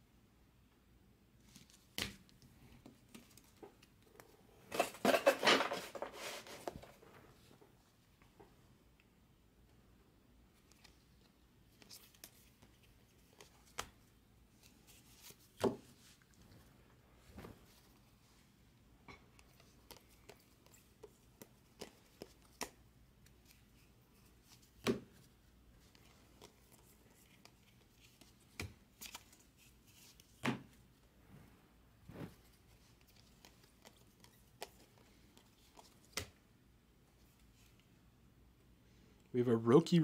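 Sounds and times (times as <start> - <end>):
trading cards flipped by hand: 1.4 - 4.9, 10.6 - 14.0, 19.4 - 25.3, 25.9 - 30.8, 32.1 - 36.4.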